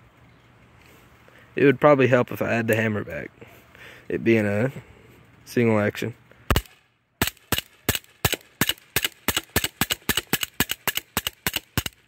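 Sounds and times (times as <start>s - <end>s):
air pistol firing rapid shots: 6.5s - 12.0s.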